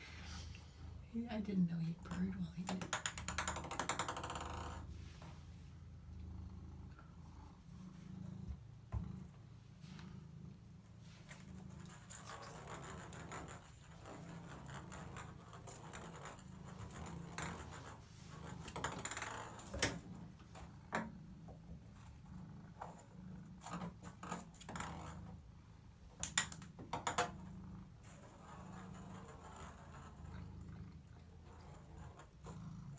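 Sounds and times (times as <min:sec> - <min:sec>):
cat purring: 0:00.0 - 0:32.9
ping pong ball rattling in bathtub: 0:01.9 - 0:04.9, 0:11.8 - 0:20.1, 0:23.6 - 0:25.4, 0:26.2 - 0:27.5.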